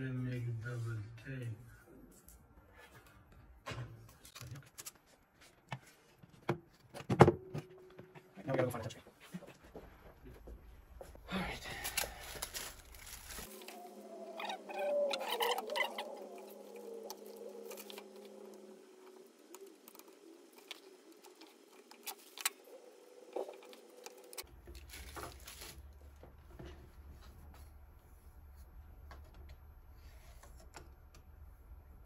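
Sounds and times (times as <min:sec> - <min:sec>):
tape rubbing and scratching: 0:12.3 - 0:25.9.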